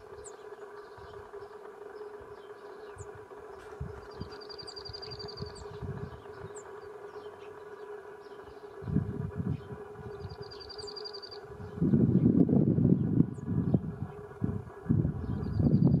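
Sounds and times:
bird trilling: 0.0s - 12.2s
distant steady hum: 0.0s - 16.0s
wind rumble on microphone: 3.0s - 6.7s, 8.8s - 10.7s, 11.4s - 16.0s.

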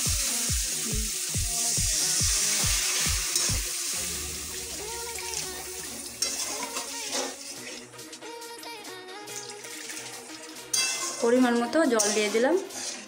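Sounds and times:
water sizzling in hot oil: 0.0s - 8.5s, 9.1s - 13.0s
spatula stirring in a pan: 6.2s - 8.2s, 9.3s - 13.0s.

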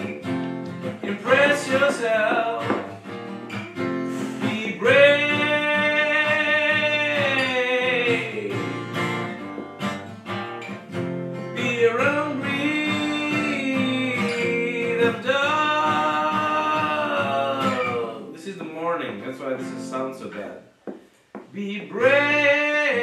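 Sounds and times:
acoustic guitar strumming: 0.0s - 23.0s
man singing long notes: 4.3s - 8.8s, 11.6s - 18.2s.

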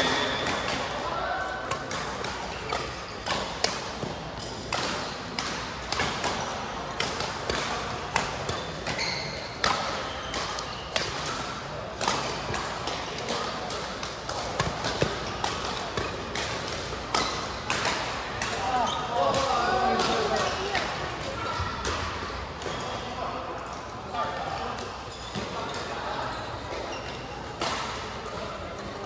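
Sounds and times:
rackets hitting shuttlecock: 0.0s - 22.9s.

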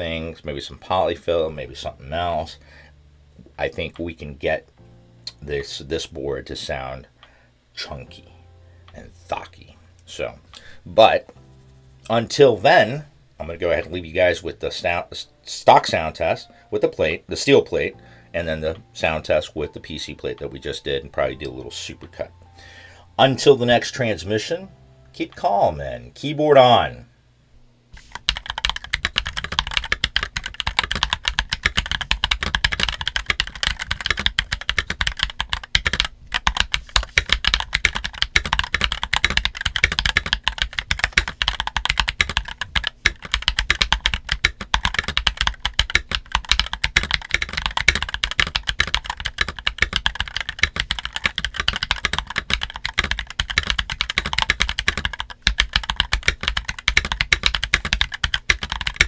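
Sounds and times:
fast typing on mechanical keyboard: 28.1s - 59.0s.

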